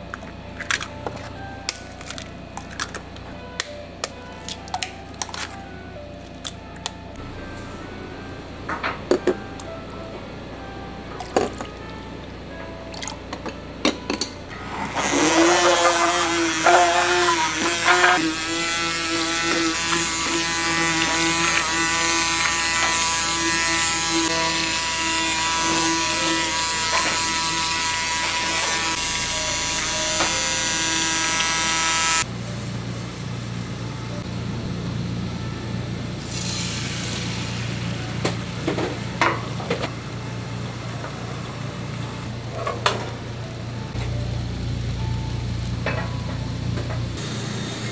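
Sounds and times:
immersion blender motor whine: 14.5s - 32.3s.

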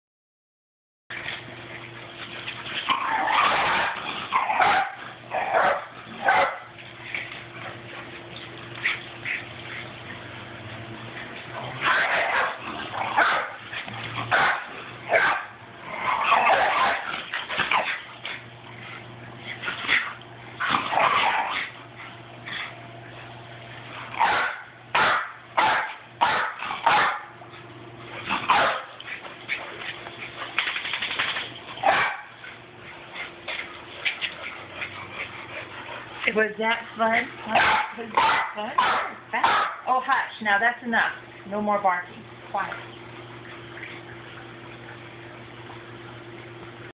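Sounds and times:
dog barking: 4.6s - 6.7s, 11.8s - 13.6s, 14.3s - 15.6s, 24.2s - 27.3s, 28.5s - 28.9s, 31.8s - 32.4s, 37.5s - 39.9s.

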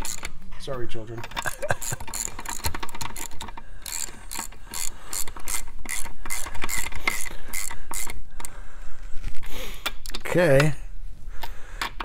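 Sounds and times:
ratchet wrench clicking: 1.4s - 8.2s.

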